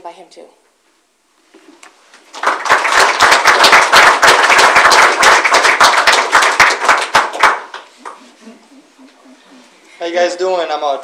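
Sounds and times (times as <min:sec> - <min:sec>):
audience applauding: 0:02.3 - 0:08.3.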